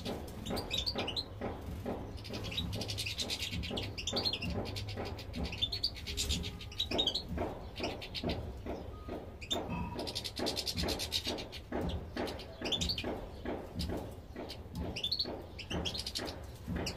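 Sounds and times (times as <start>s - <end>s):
finches chirping and twittering: 0.0s - 16.9s.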